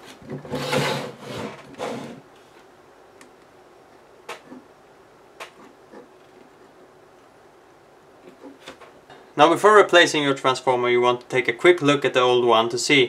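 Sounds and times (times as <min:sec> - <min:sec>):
multimeter sliding on wooden bench: 0:00.4 - 0:02.2.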